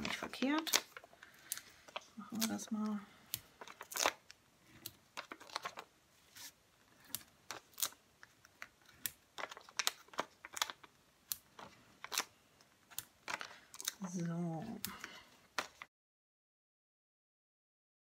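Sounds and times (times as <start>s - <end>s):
foam adhesive dots clicking: 7.0s - 14.0s.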